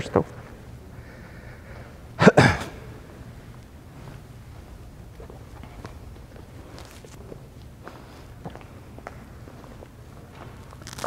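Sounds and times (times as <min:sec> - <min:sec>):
low room hum: 0:00.0 - 0:11.0
faint footsteps: 0:03.4 - 0:11.0.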